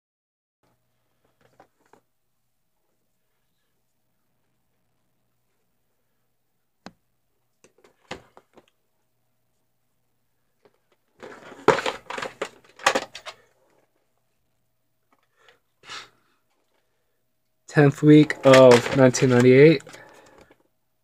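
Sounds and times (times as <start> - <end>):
plastic cases scraping on shelf: 11.2 - 13.4, 17.8 - 20.5
plastic tape cases knocking: 18.2 - 20.6.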